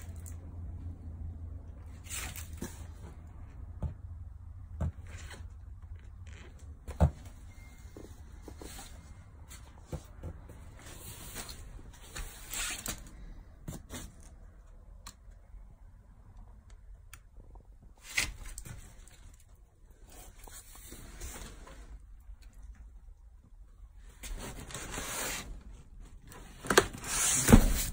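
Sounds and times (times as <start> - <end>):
low steady rumble: 0.0 - 12.1
rustling and knocking cardboard cases: 2.4 - 12.4, 26.5 - 27.9.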